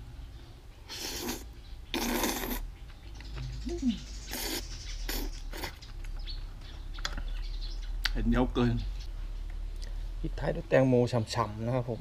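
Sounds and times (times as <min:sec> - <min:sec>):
person slurping noodles: 0:00.9 - 0:02.7, 0:04.3 - 0:05.8.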